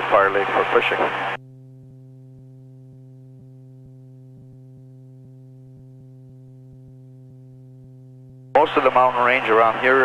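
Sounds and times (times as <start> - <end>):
pilot speaking: 0.0 - 1.3, 8.6 - 10.0
low intercom hum: 0.0 - 7.8, 8.5 - 10.0.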